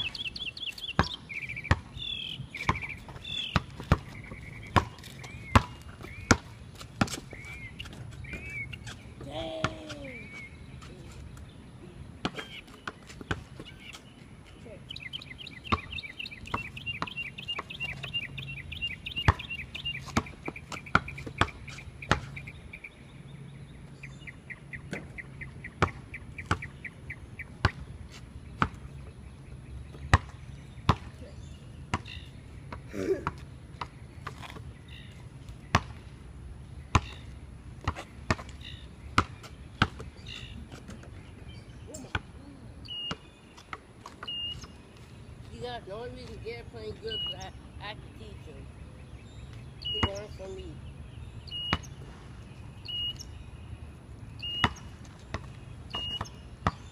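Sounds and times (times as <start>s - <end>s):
basketball bouncing on concrete: 0.9s - 2.0s, 2.6s - 10.4s, 12.2s - 13.8s, 15.7s - 18.2s, 19.2s - 22.4s, 25.7s - 26.8s, 28.6s - 29.1s, 30.0s - 31.3s, 31.9s - 36.1s, 36.9s - 41.1s, 49.9s - 50.5s, 51.6s - 52.0s, 54.4s - 56.9s
bird trilling: 14.8s - 22.9s.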